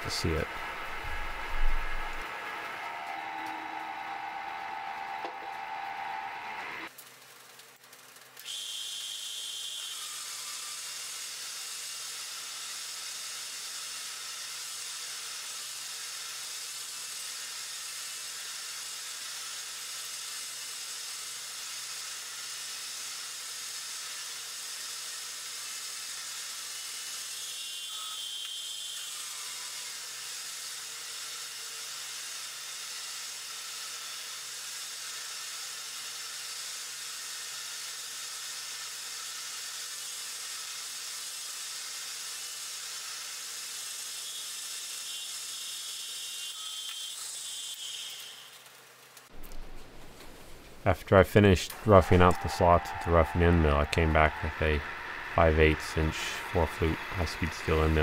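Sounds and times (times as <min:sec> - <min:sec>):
milling machine cutting steel: 0:00.0 - 0:07.0, 0:08.3 - 0:49.2, 0:51.6 - 0:58.0
brief high tone: 0:03.2 - 0:05.1.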